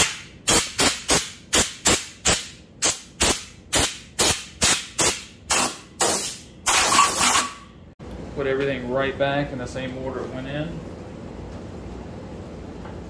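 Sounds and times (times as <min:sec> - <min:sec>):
air blow gun hissing: 0:03.2 - 0:07.6.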